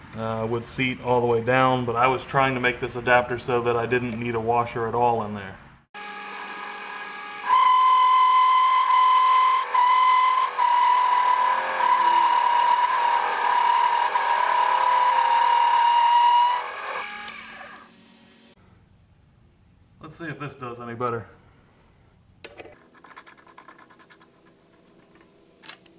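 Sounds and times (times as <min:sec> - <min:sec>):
lathe cutting metal whine: 0:06.0 - 0:17.9.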